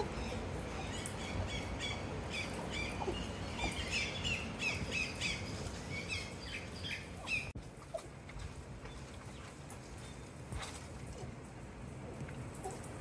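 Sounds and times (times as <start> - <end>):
birds squawking and chirping: 0.0 - 7.6.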